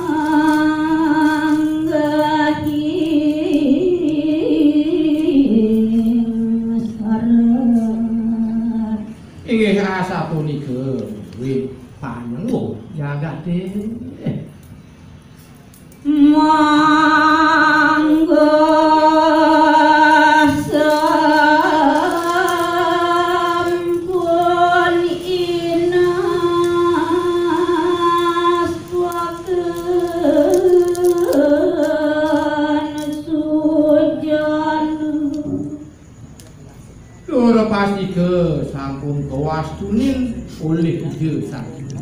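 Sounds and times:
woman singing unaccompanied: 0:00.0 - 0:09.4, 0:15.9 - 0:36.5.

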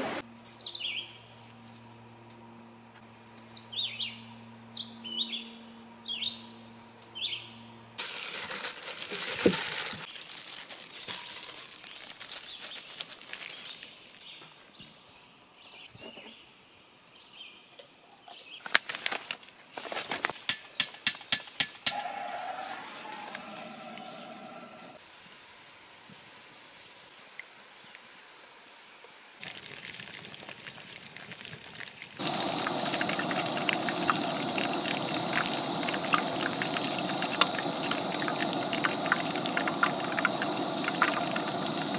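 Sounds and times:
bird chirping: 0:00.6 - 0:01.3, 0:03.5 - 0:07.6
paper map crackling: 0:08.0 - 0:14.2, 0:18.6 - 0:20.4
plastic gloves crinkling: 0:08.0 - 0:14.2, 0:18.6 - 0:20.4.

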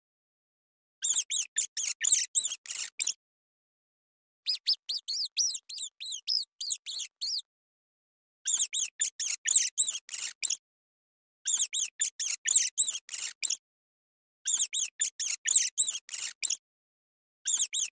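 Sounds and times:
rat squeaking: 0:01.0 - 0:03.2, 0:04.5 - 0:07.5, 0:08.4 - 0:10.6, 0:11.4 - 0:13.6, 0:14.4 - 0:16.6, 0:17.4 - 0:17.9.

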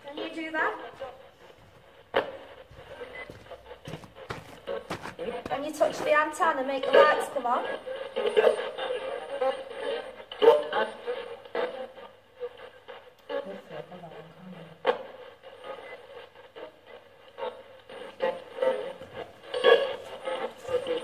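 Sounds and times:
radio voice fragments: 0:00.1 - 0:12.6, 0:17.4 - 0:21.0
radio static bursts: 0:00.2 - 0:13.4, 0:14.8 - 0:21.0.

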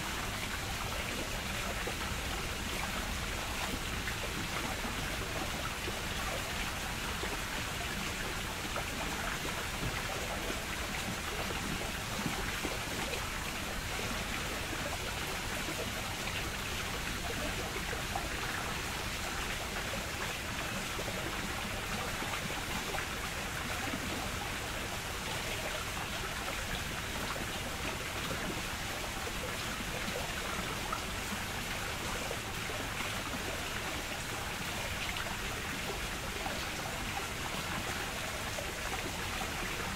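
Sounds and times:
running water rushing and trickling: 0:00.0 - 0:39.9.

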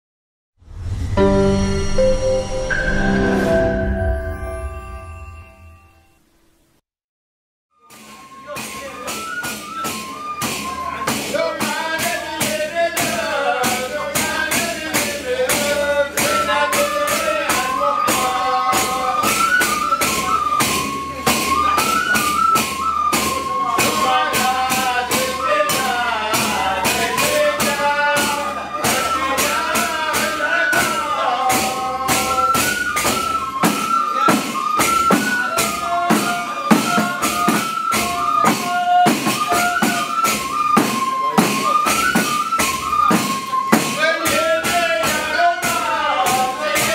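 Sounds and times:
melody in held notes: 0:01.2 - 0:06.3
frame drums beating: 0:07.9 - 0:46.9.

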